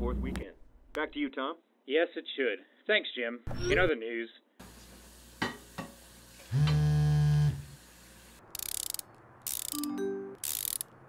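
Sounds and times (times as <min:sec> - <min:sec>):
phone vibrating on countertop: 0:06.5 - 0:07.6.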